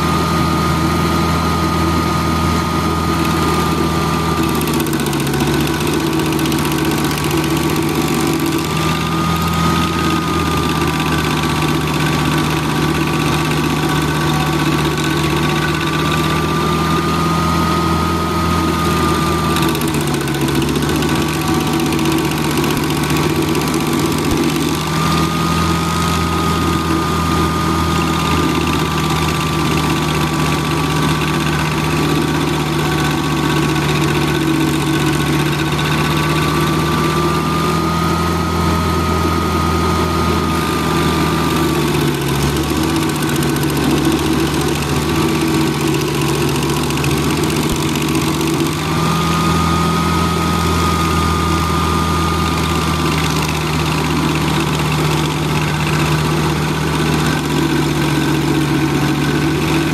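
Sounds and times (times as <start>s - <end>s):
cutter wheel grinding stump: 0.0s - 59.9s
stump grinder engine running: 0.0s - 59.9s.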